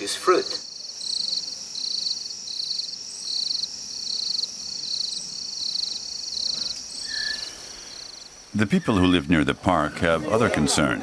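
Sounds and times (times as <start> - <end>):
cricket chirping: 0.0 - 11.0
insects droning: 0.0 - 11.0.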